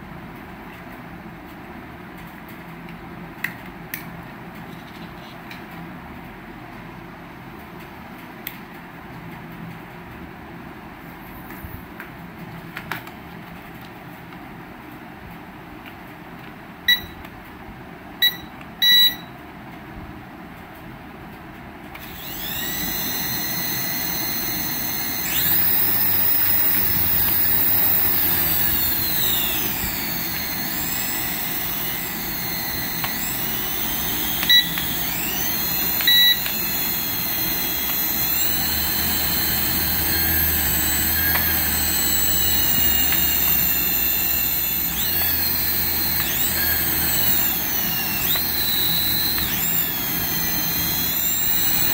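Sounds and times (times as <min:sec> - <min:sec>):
short high beeps: 0:16.9 - 0:17.2, 0:18.2 - 0:19.3
toy helicopter motors whining: 0:22.0 - 0:51.9.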